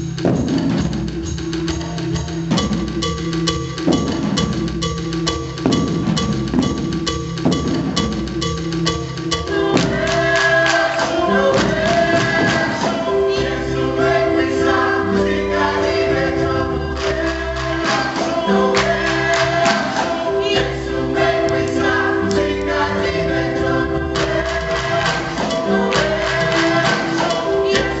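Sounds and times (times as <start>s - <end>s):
drum strikes: 0.0s - 13.5s, 17.0s - 28.0s
instrumental accompaniment: 0.0s - 28.0s
choir singing: 9.4s - 28.0s.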